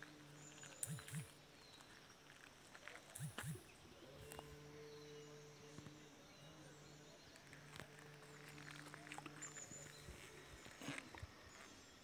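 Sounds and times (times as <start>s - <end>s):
faint bird chirps: 0.0s - 12.0s
low monotone chanting: 3.5s - 10.7s.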